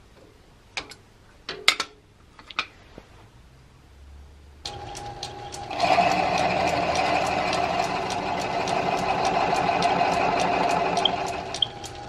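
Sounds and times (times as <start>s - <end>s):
lathe cutting wood: 4.7s - 12.0s
light regular ticking: 4.7s - 12.0s.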